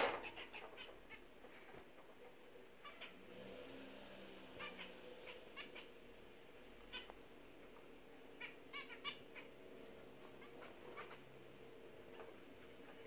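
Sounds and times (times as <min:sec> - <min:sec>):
zebra finches calling: 0:02.8 - 0:03.3, 0:04.4 - 0:06.1, 0:06.8 - 0:07.2, 0:08.3 - 0:09.6, 0:10.2 - 0:11.3.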